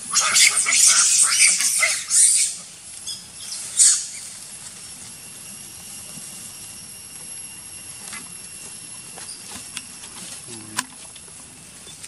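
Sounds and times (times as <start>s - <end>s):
macaque squealing: 0.0s - 4.4s
faint high whine: 0.0s - 12.0s.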